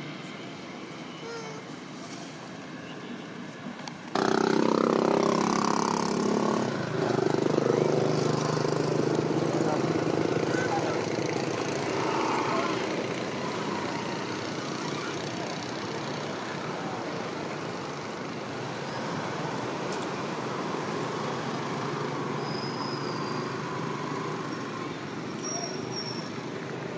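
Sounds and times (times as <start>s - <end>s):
road traffic hum: 0.0s - 26.9s.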